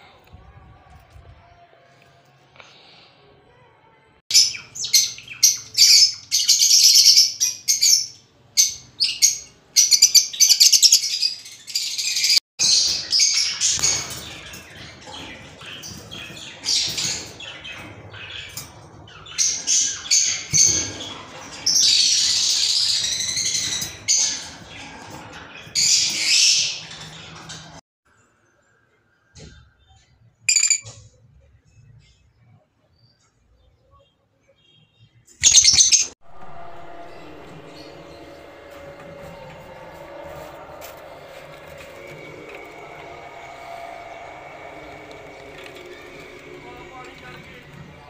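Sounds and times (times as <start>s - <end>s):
lovebirds chirping and squawking: 4.3s - 27.5s, 29.5s - 31.0s, 35.4s - 36.2s.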